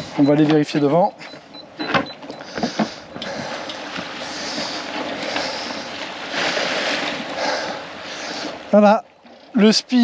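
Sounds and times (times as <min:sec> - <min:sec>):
sea water rushing past hull: 0:02.4 - 0:10.0.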